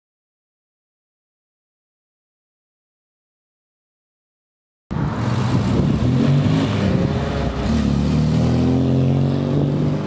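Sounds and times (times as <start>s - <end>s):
car engine revving: 4.9s - 10.0s.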